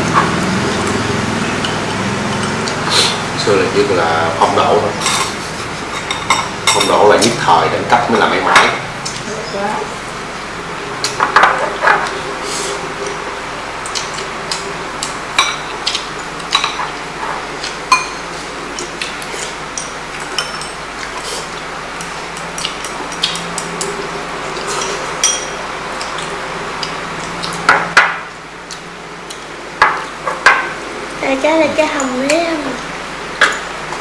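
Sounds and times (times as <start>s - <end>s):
utensils clinking against bowls: 4.4s - 7.4s, 15.4s - 27.9s.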